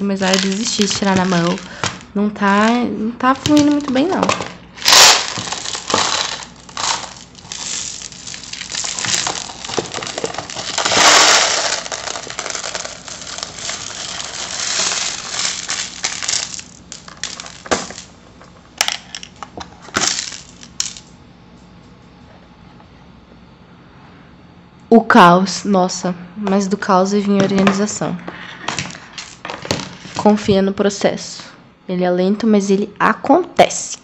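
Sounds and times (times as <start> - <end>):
beads pouring and rattling: 0.2 - 2.0, 4.8 - 18.1, 20.0 - 21.1
single beads clicking: 4.8 - 18.1.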